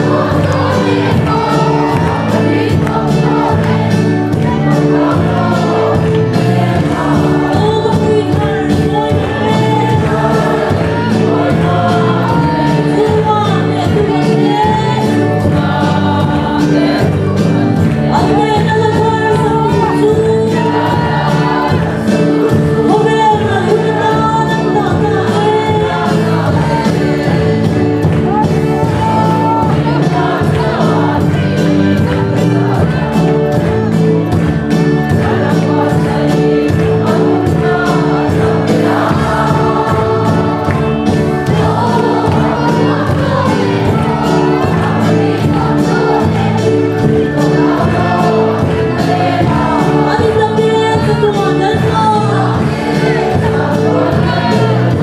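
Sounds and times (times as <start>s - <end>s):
congregation singing: 0.0s - 55.0s
instrumental accompaniment: 0.0s - 55.0s.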